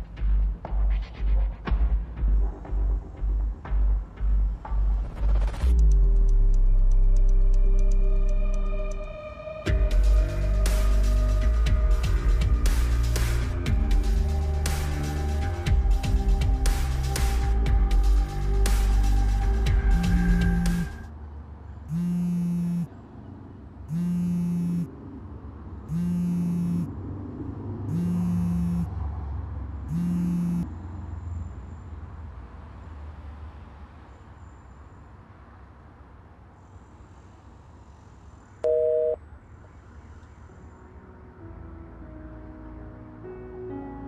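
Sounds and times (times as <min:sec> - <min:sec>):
phone buzzing tone: 0:21.9 - 0:22.9, 0:23.9 - 0:24.9, 0:25.9 - 0:26.9, 0:27.9 - 0:28.9, 0:29.9 - 0:30.7, 0:38.6 - 0:39.2
short high beep: 0:38.6 - 0:39.2.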